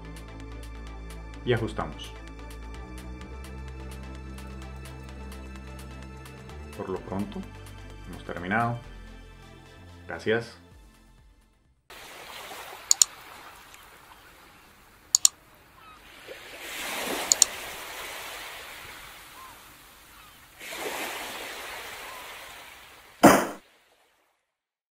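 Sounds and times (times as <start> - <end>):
ocean surf on beach: 11.9 - 24.0
sharp double clicks: 12.9 - 13.1, 15.1 - 15.4, 17.3 - 17.5.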